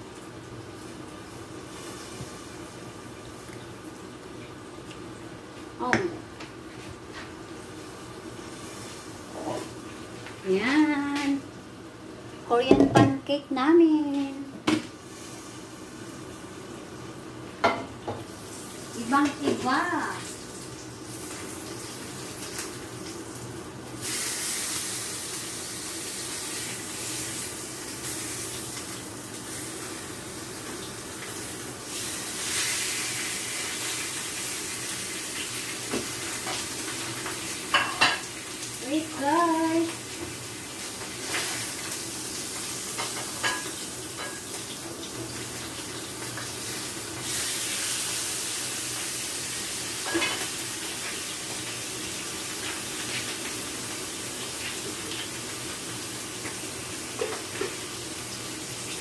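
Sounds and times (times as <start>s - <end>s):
oil sizzling in a frying pan: 0.0s - 59.0s.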